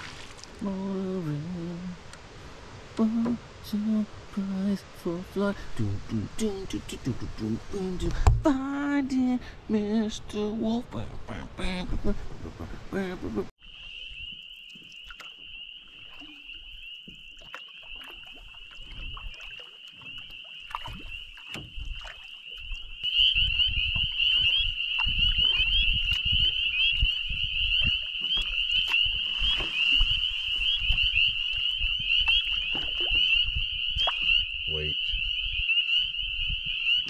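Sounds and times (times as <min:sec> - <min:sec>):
canoe knocks and rumble: 0:08.1 - 0:08.6, 0:18.9 - 0:34.4
frogs calling: 0:13.6 - 0:37.0.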